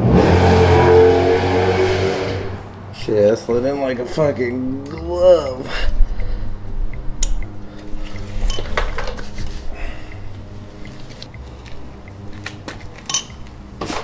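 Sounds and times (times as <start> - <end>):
light metallic clinks: 13.0 - 13.4.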